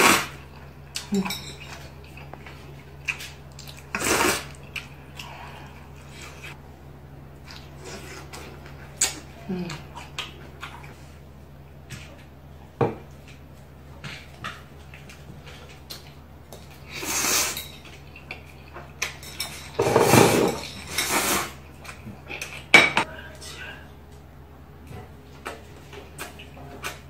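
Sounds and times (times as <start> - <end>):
slurping noodles: 0.0 - 0.4, 3.8 - 4.6, 19.8 - 21.6.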